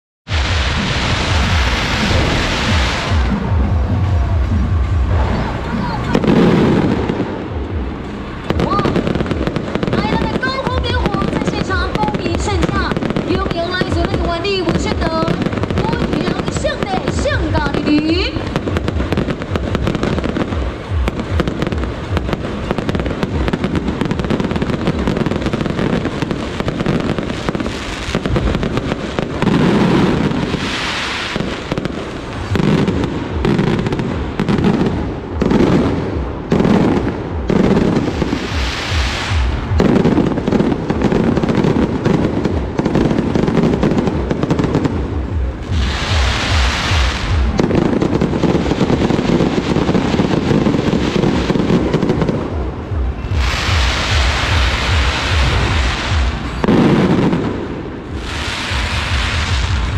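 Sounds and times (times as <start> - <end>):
fireworks bangs and crackling: 0.3 - 59.9
firework hiss rushes: 25.1 - 32.3, 38.0 - 39.7, 45.8 - 47.4, 58.2 - 59.9.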